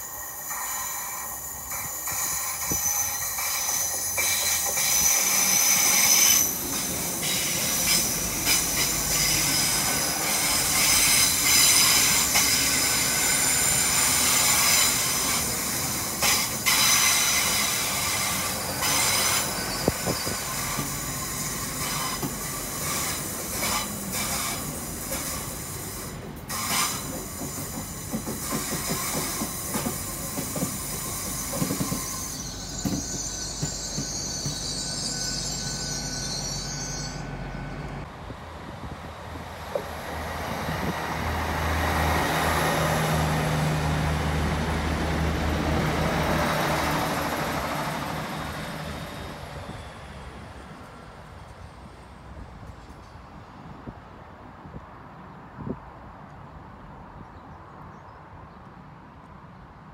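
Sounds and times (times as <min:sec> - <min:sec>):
train wheels squealing: 0:00.0 - 0:38.1, 0:46.1 - 0:53.3
rumble of train running gear: 0:00.9 - 0:41.4.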